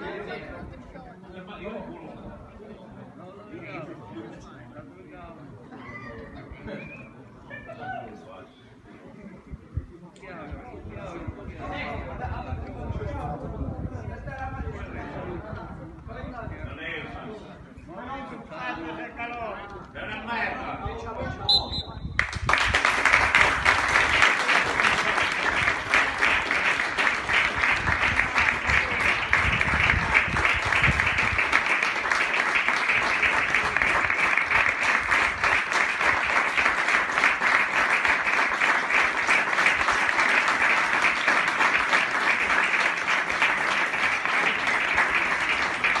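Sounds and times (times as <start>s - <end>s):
crowd applause: 22.2s - 46.0s.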